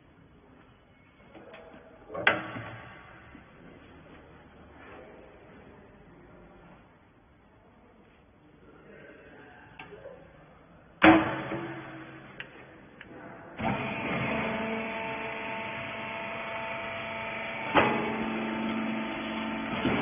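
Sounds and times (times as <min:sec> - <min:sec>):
sharp clunk: 0:11.0 - 0:12.3
electric motor humming: 0:13.6 - 0:20.0.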